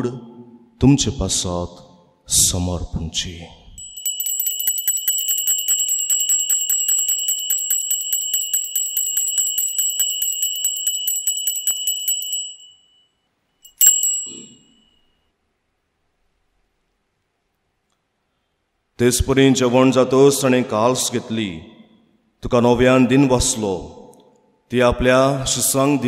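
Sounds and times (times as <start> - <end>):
altar bells ringing rapidly: 3.8 - 13.0, 13.6 - 15.0
single bell stroke: 3.8 - 15.2.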